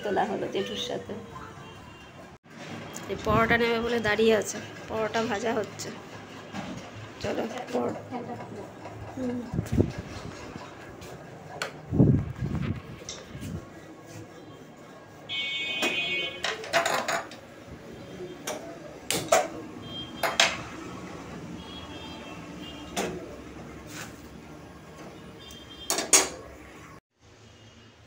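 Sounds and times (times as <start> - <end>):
metal pans and utensils clattering: 15.7 - 17.4.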